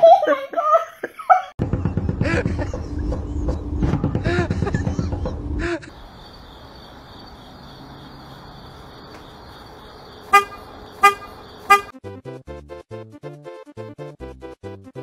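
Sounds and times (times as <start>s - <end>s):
horn toots: 10.3s - 11.9s.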